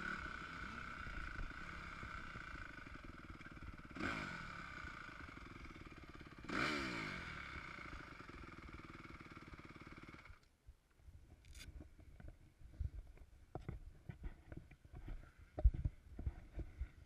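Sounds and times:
motorbike engine idling and revving: 0:00.0 - 0:10.5.

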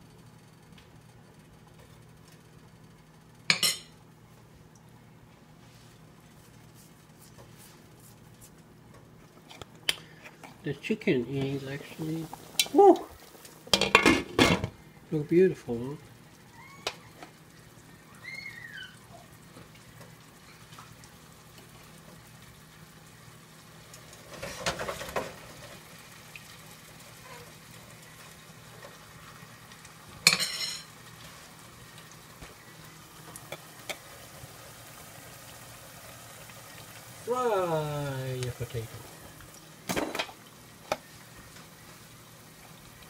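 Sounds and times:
food sizzling in hot oil: 0:03.4 - 0:04.0, 0:09.8 - 0:43.0.

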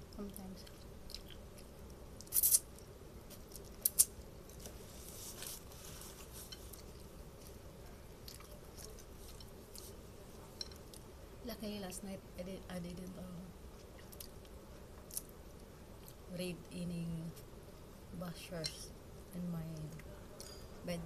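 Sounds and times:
person chewing noodles: 0:00.6 - 0:04.7.

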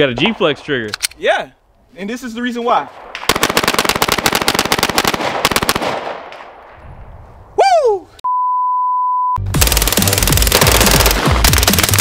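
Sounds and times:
rapid pistol shots: 0:03.0 - 0:06.6, 0:09.5 - 0:12.0
short falling cry: 0:07.6 - 0:08.2
censor bleep tone: 0:08.2 - 0:09.4.

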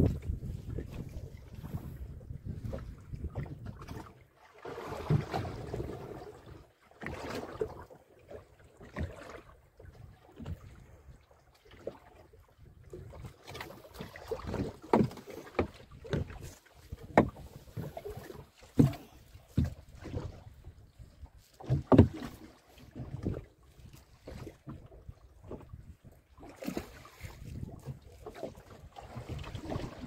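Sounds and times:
wind gusting on microphone: 0:00.0 - 0:03.8
water lapping against hull: 0:00.0 - 0:30.0.

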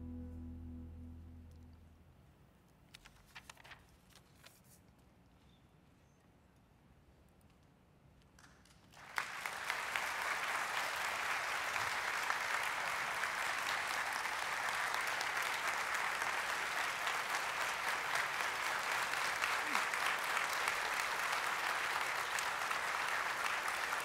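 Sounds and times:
audience applauding: 0:08.9 - 0:24.0.

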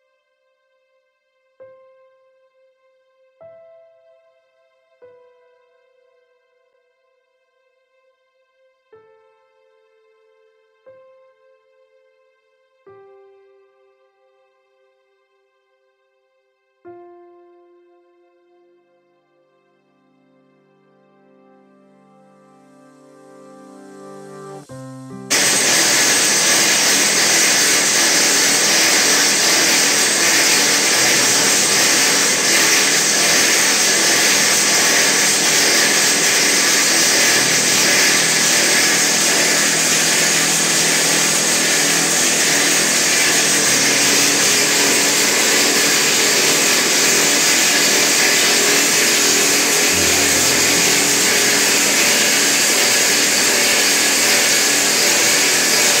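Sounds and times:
rock drill drilling: 0:25.3 - 0:56.0
water flushing: 0:25.3 - 0:56.0.

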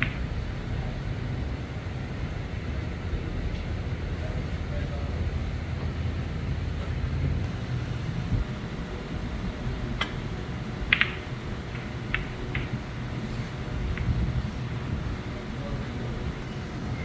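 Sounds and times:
cue striking ball: 0:00.0 - 0:00.3, 0:09.9 - 0:14.4
snooker balls clicking: 0:00.0 - 0:00.4, 0:09.5 - 0:14.5
low room hum: 0:00.0 - 0:17.0.

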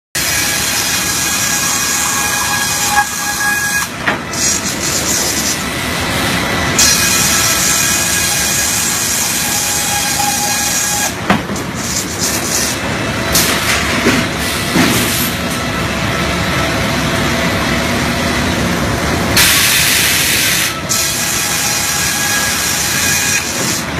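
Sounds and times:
heavy machinery rumble: 0:00.2 - 0:23.9
hiss: 0:19.4 - 0:21.9.

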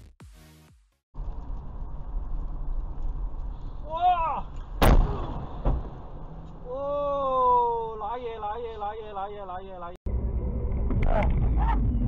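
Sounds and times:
road and engine rumble: 0:01.2 - 0:12.0
sharp bang: 0:04.8 - 0:06.2
short voice exclamation: 0:06.7 - 0:08.8.

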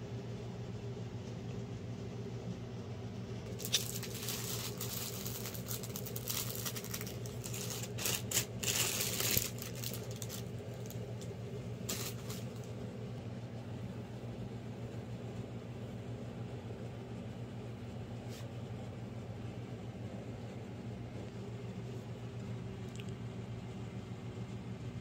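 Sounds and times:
steady low hum: 0:00.0 - 0:25.0
plastic packaging crinkling: 0:03.5 - 0:12.8.

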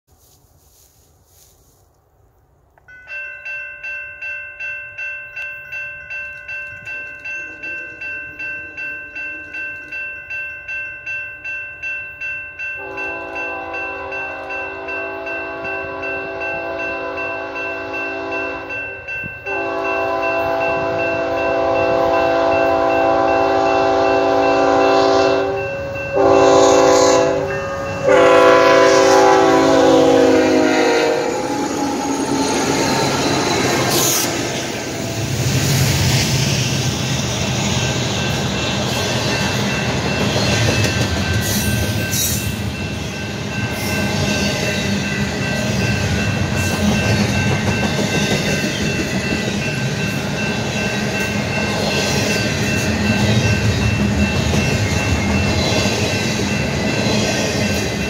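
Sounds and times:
crossing bell ringing: 0:02.8 - 0:58.0
locomotive air horn blasts: 0:12.8 - 0:18.7, 0:19.5 - 0:31.6.

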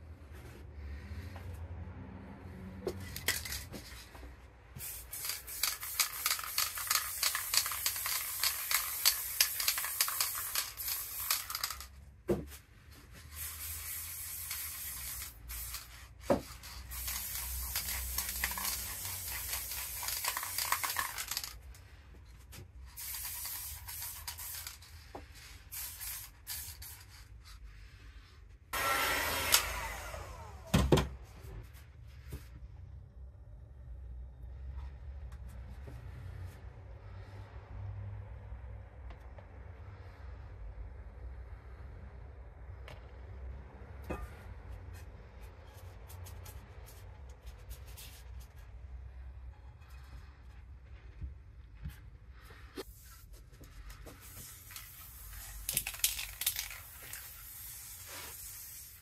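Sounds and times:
spray paint can hissing: 0:04.8 - 0:11.9, 0:13.2 - 0:21.6, 0:22.9 - 0:27.3, 0:54.1 - 0:59.0.

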